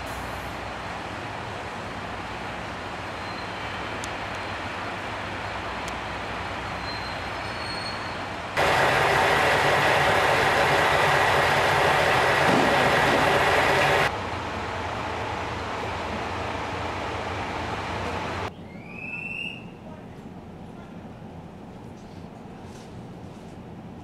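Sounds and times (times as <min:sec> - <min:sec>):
diesel railcar engine idling: 0:08.3 - 0:18.6
loud steady hiss: 0:08.5 - 0:14.1.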